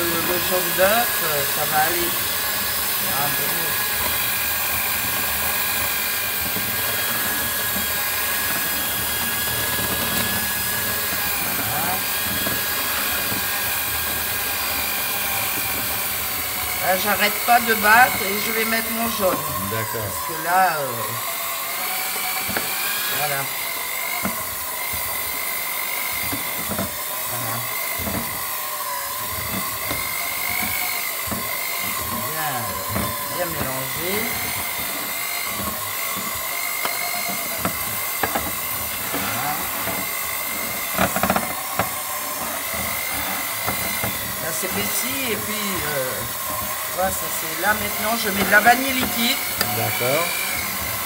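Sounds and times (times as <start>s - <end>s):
electric hand mixer whining: 0.0s - 51.0s.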